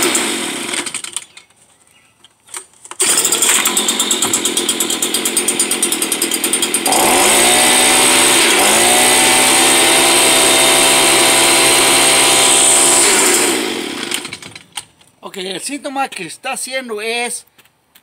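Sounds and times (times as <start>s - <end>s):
leaf blower engine revving: 0.0s - 1.2s, 3.0s - 14.7s
man talking: 15.2s - 17.5s.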